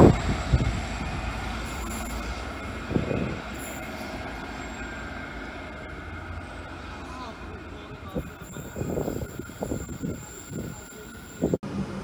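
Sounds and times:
diesel locomotive engine: 0.0s - 12.0s
wheels squealing on rails: 0.0s - 12.0s.

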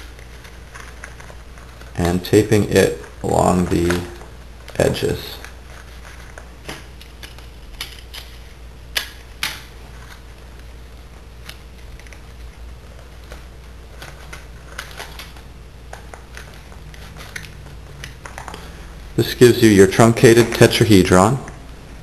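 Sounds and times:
paper crinkling: 0.0s - 8.6s, 9.8s - 18.7s
sharp paper snaps: 6.6s - 9.7s
sticky tape clicks: 6.7s - 9.7s.

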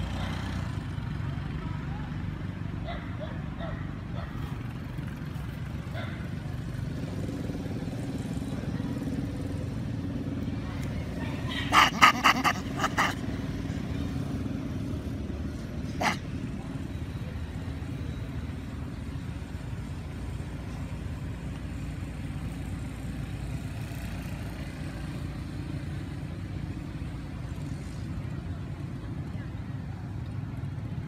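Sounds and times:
short loud animal calls: 11.5s - 13.2s, 15.9s - 16.2s.

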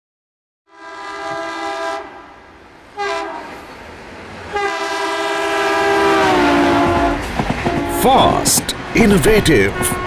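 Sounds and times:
train horn blasts: 0.7s - 2.3s, 3.0s - 3.6s, 4.5s - 8.4s, 9.6s - 10.0s.

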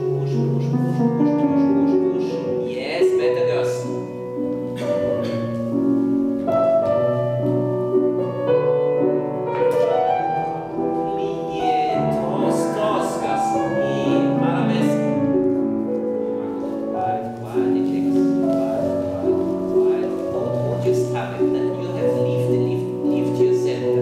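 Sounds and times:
slow classical piano music: 0.0s - 24.0s.

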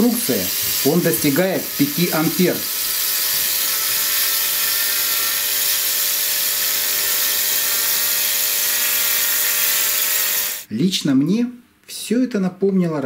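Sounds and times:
small motor whirring: 0.5s - 10.7s.

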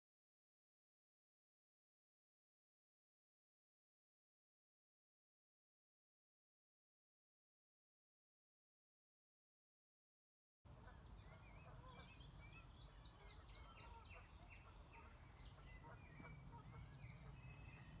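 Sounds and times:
songbirds chirping: 10.7s - 18.0s.

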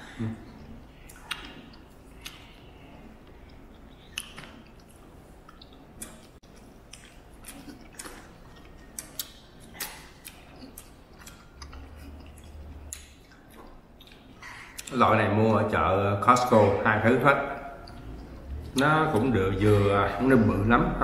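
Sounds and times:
wet chewing smacks: 0.5s - 15.0s, 17.5s - 20.0s
low hum: 15.8s - 21.0s.

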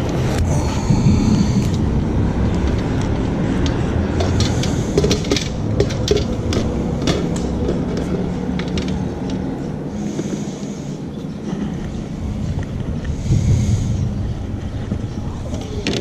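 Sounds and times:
low rumble: 0.0s - 16.0s
fishing rods clicking and knocking: 2.6s - 9.6s, 15.5s - 16.0s.

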